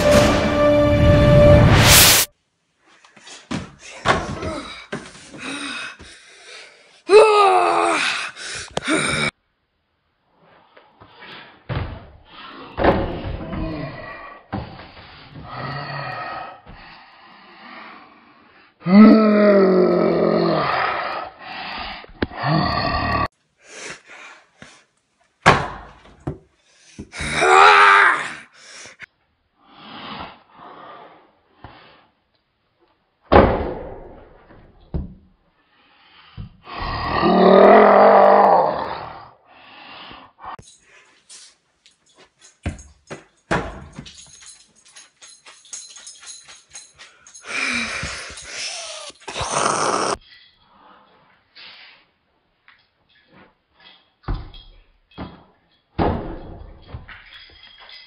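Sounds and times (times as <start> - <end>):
basketball hoop banging on door: 25.4 - 26.0, 43.5 - 44.0, 56.0 - 57.1.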